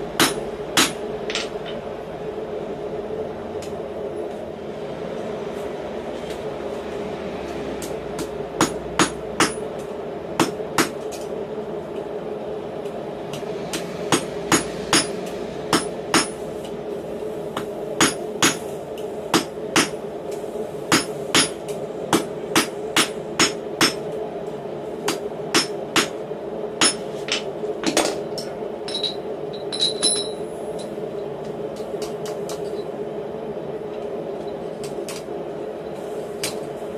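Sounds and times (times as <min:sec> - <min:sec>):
steady hum: 0:00.0 - 0:36.9
hammer striking steel on anvil: 0:00.2 - 0:01.6, 0:08.2 - 0:09.6, 0:13.7 - 0:16.4, 0:18.0 - 0:18.6, 0:20.9 - 0:24.0, 0:25.1 - 0:26.2, 0:26.8 - 0:27.1.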